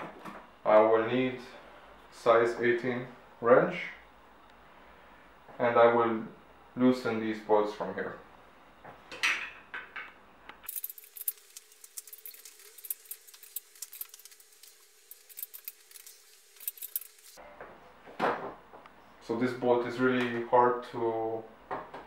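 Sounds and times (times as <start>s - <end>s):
wrench clinking on metal: 10.7s - 14.3s, 15.1s - 17.3s.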